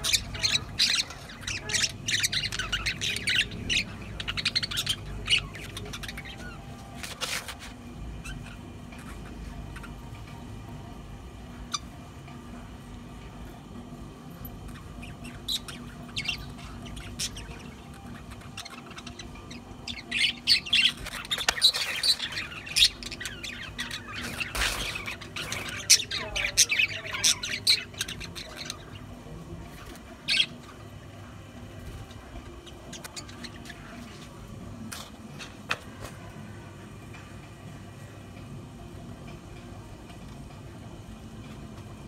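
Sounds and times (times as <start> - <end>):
budgerigars chirping and squawking: 0.0 - 10.4, 11.6 - 12.0, 14.5 - 30.8, 31.8 - 34.4.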